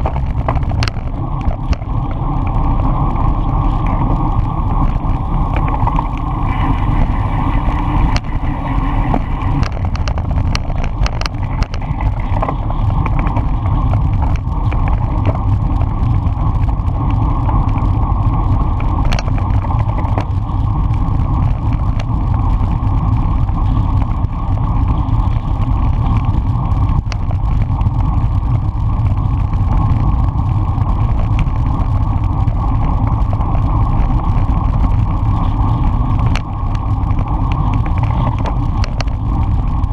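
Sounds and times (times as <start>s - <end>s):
sharp clicks and knocks: 0.0s - 1.9s, 9.0s - 17.9s, 18.8s - 22.2s, 36.2s - 39.5s
wind rushing over microphone: 0.0s - 39.9s.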